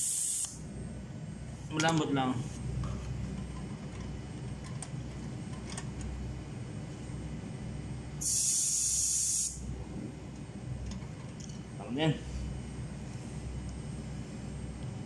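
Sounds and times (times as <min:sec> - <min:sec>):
air hissing from tyre valve: 0:00.0 - 0:00.6, 0:08.2 - 0:09.6.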